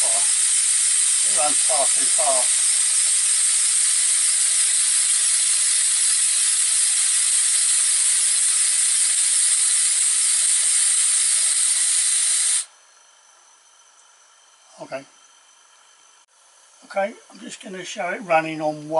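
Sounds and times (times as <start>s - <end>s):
air hissing through model engine: 0.0s - 12.7s.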